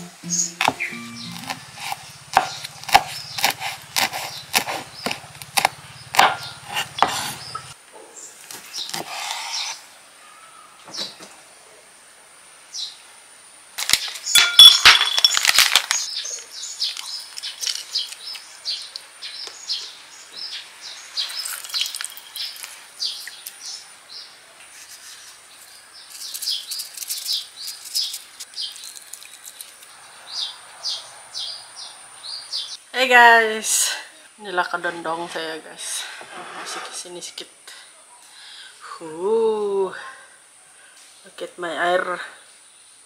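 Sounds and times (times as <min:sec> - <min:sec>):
small birds chirping: 0:00.2 - 0:11.2, 0:15.9 - 0:32.8.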